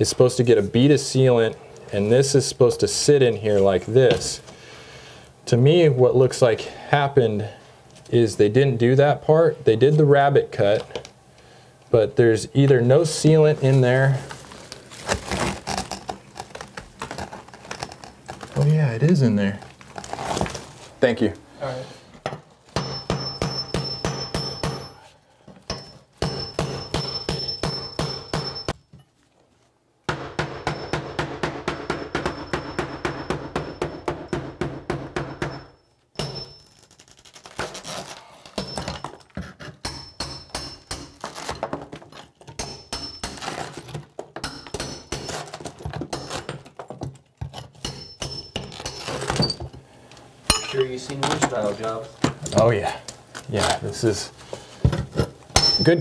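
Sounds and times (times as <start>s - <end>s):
power chisel hammering tile: 30.1s - 36.5s.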